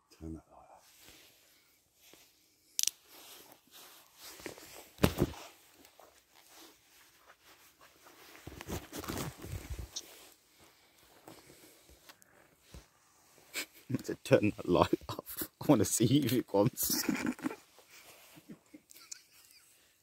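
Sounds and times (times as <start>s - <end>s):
rustling and crunching: 2.8s - 12.8s.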